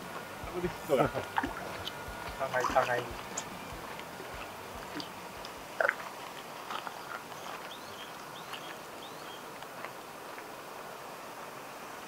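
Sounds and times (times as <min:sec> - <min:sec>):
birds chirping: 0:00.0 - 0:09.5.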